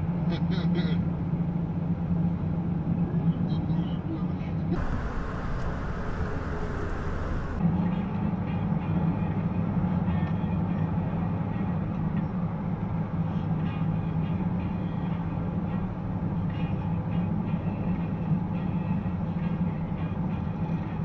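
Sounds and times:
car engine and road noise: 4.7 - 7.7.

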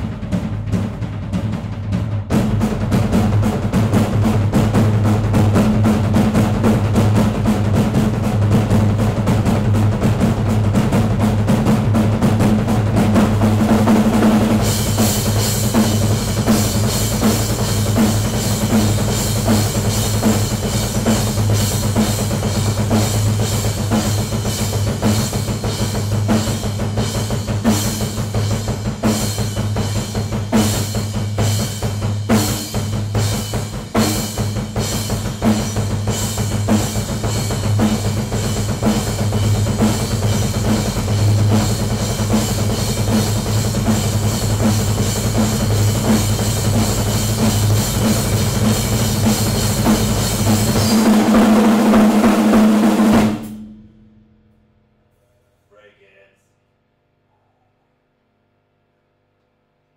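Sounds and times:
fast bass drum strokes: 0.0 - 54.4
cymbal hits: 53.3 - 54.4.

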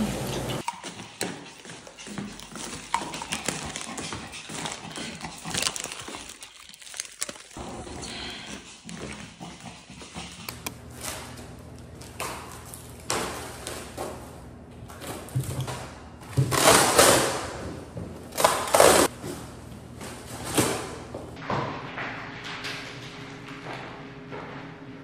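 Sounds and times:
scissors cutting plastic: 2.4 - 7.6
plastic wrap crinkling and ripping: 3.3 - 7.6.

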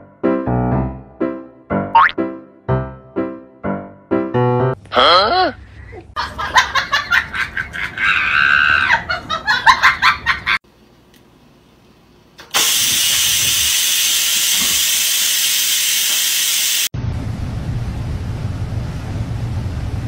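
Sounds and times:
rice cooker steam hissing: 12.4 - 16.9.

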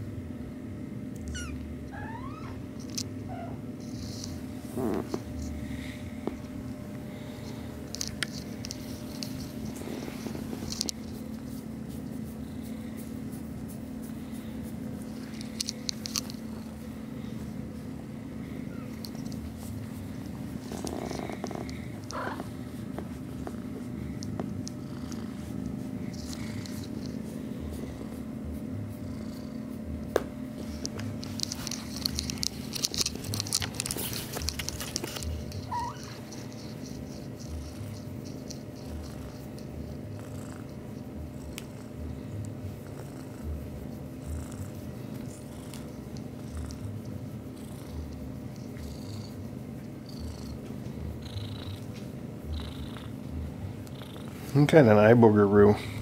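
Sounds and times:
kitten purring: 1.2 - 56.0
rustling of fur and fabric: 3.8 - 28.7, 29.6 - 40.1.

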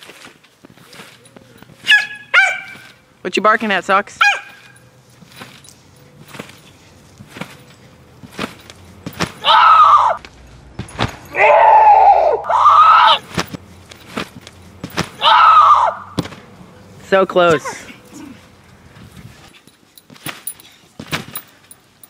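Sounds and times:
trampoline mat thumping: 8.2 - 9.7, 10.7 - 11.3, 13.2 - 16.6, 19.4 - 21.5
high-pitched cries: 9.4 - 10.2, 11.3 - 13.2, 15.2 - 16.1.

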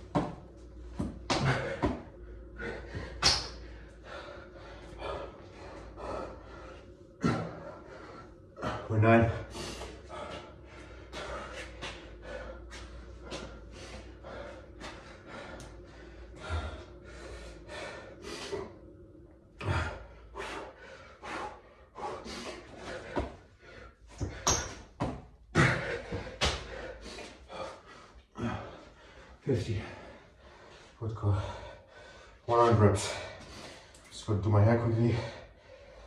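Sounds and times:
thuds of hands and feet on tiles: 0.0 - 2.2, 22.8 - 23.5, 24.1 - 26.8
man breathing hard: 0.0 - 34.2, 34.9 - 36.0.

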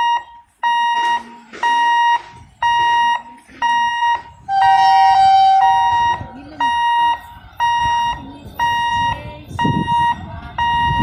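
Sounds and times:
level crossing alarm beeping: 0.0 - 11.0
low horn tone: 4.5 - 6.4.

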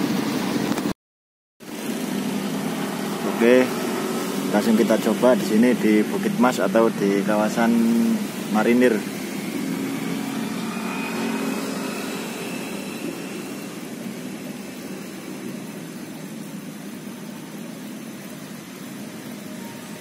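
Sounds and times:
passing vehicle engine rumble: 1.7 - 16.4.

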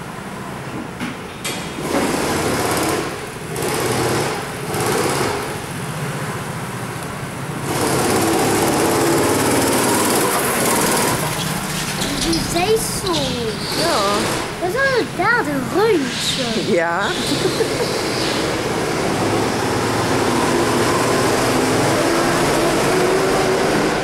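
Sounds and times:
go-kart engines buzzing: 1.6 - 24.0.

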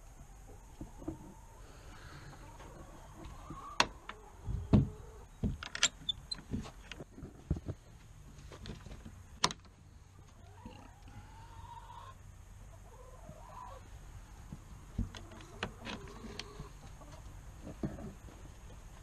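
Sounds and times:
hens clucking: 0.2 - 5.4, 10.0 - 18.8
hens drawn-out wavering calls: 1.2 - 5.3, 10.4 - 12.2, 12.8 - 13.9.

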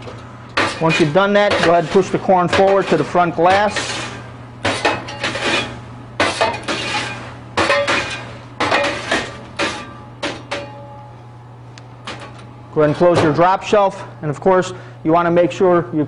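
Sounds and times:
steady low hum: 0.0 - 16.0
scoop scraping metal screen: 0.6 - 10.7.

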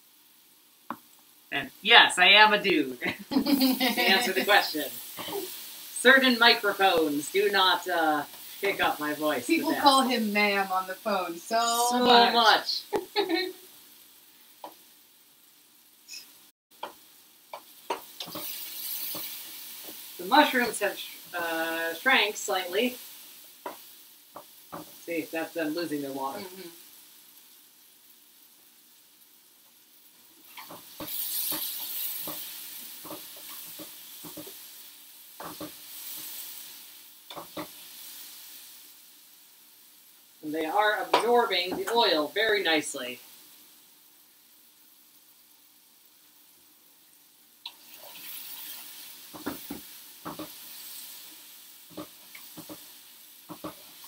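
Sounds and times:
mushrooms sizzling in a frying pan: 0.0 - 54.0
small pops and clicks: 14.6 - 14.8, 16.1 - 20.0, 30.5 - 34.6, 47.6 - 47.9, 51.9 - 54.0
utensil taps and scrapes on pan: 14.6 - 14.8, 16.8 - 20.0, 23.6 - 25.0, 30.5 - 34.6, 35.4 - 35.8, 37.3 - 37.8, 49.3 - 50.6, 51.9 - 52.9, 53.5 - 53.9.

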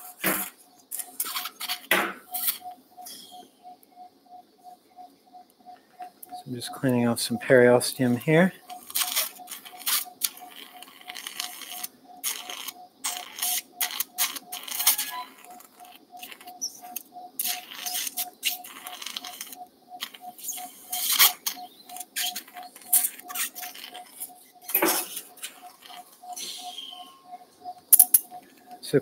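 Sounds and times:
pulse monitor beeps: 0.6 - 29.0
steel instruments clicking and scraping: 6.2 - 26.7.

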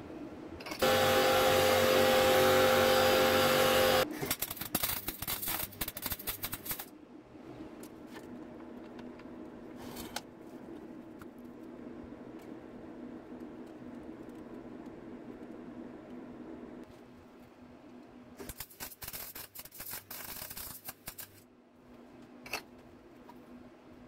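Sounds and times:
loud steady buzz: 0.8 - 4.1
welder crackling: 0.8 - 6.9.

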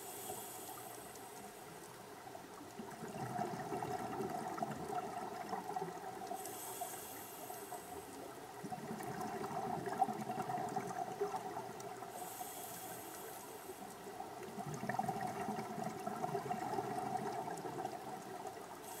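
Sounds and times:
regulator inhale hiss: 0.0 - 1.8, 6.3 - 8.3, 12.0 - 14.1, 18.8 - 19.0
bubbling exhale underwater: 2.9 - 6.3, 8.6 - 12.0, 14.5 - 19.0.

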